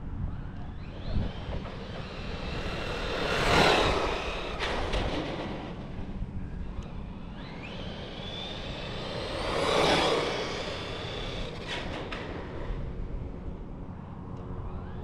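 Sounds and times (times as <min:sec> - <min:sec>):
electric motor whining: 0:00.2 - 0:12.0.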